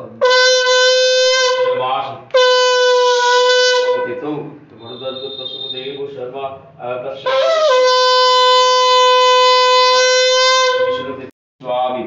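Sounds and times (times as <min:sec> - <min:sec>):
conch shell blown: 0:00.0 - 0:04.3, 0:07.2 - 0:11.2
voices: 0:03.9 - 0:07.6.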